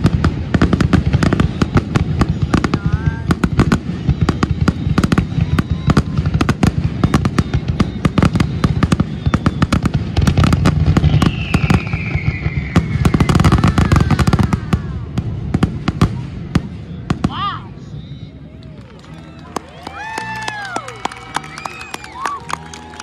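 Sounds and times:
fireworks bursting: 0.0 - 23.0
long falling whistle: 7.0 - 10.0, 11.0 - 14.4, 18.7 - 23.0.

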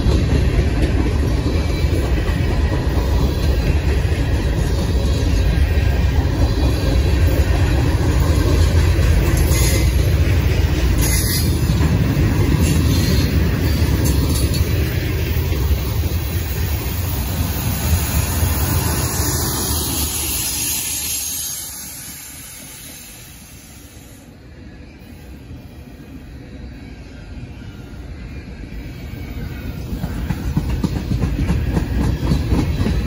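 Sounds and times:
train wheels rumbling on rails: 0.0 - 33.0
high wheel squeals: 10.9 - 11.8.

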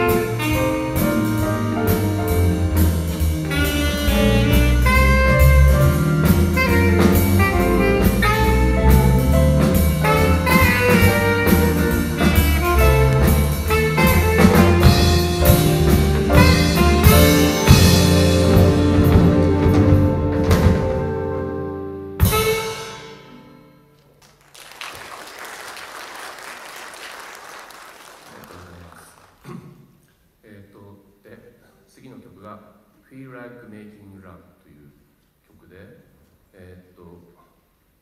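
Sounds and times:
saxophone melody: 0.0 - 20.2
electric bass: 0.0 - 21.2
drum kit: 0.0 - 21.5, 22.2 - 23.2.

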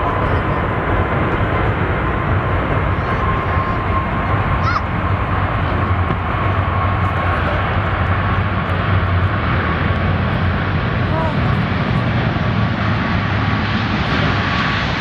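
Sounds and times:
jet engines at take-off power: 0.0 - 15.0.

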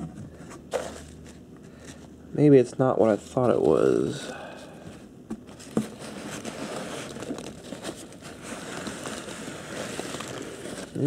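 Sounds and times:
foam packing peanuts rustling: 3.0 - 4.3, 5.5 - 11.0.

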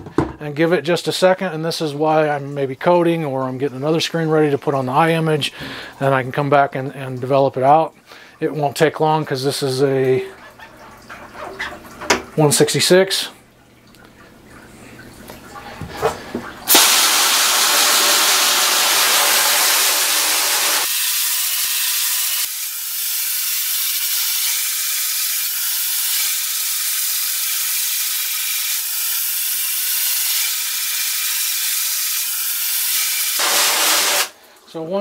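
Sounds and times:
water spraying from hose nozzle: 16.7 - 34.4.

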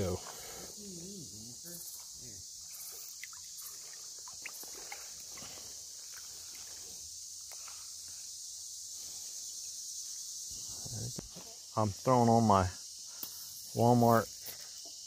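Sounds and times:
high-pitched insect chorus: 0.0 - 15.0
creek water splashing: 1.7 - 8.1.

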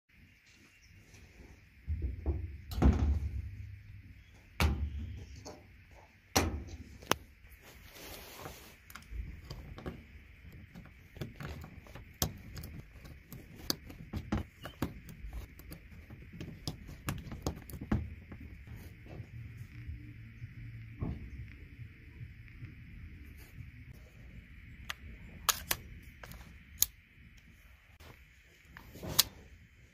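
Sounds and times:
faint steady hiss: 0.1 - 29.9
cartridges clicking into magazine: 25.5 - 25.9.

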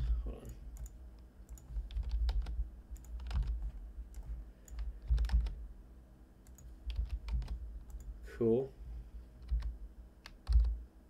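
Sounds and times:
keyboard typing: 0.4 - 5.6, 6.4 - 8.1, 9.4 - 10.8.

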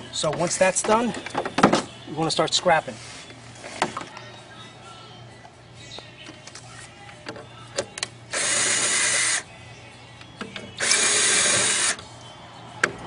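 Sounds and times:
power drill whirring: 8.3 - 9.4, 10.8 - 12.0.

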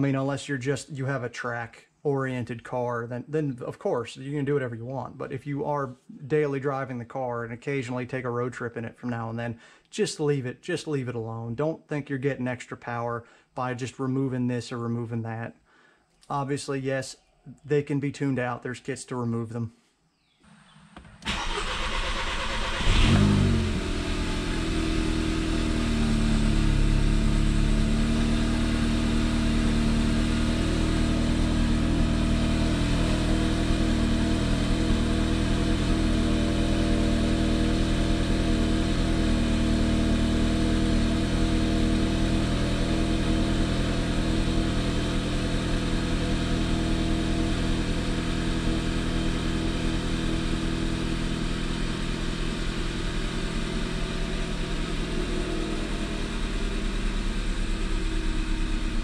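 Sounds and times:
car engine cold start and idle: 20.5 - 59.0.

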